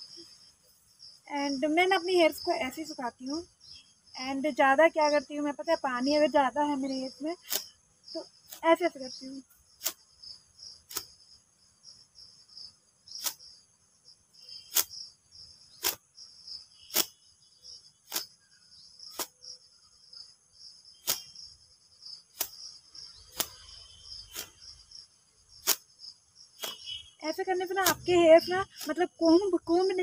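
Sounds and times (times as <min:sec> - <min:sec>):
insects chirring: 0:00.0 - 0:30.0.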